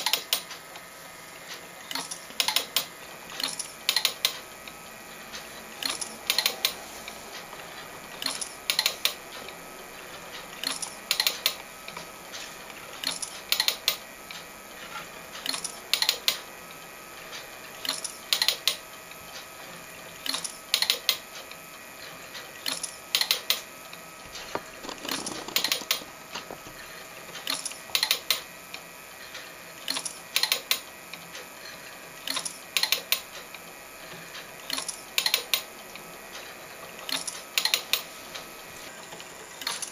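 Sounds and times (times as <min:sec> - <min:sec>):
mechanical clicks of film scanner: 0:37.0 - 0:38.5.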